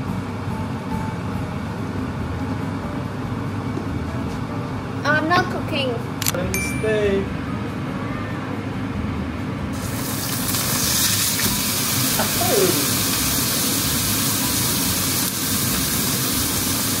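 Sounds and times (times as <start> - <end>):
steak sizzling in frying pan: 9.8 - 17.0.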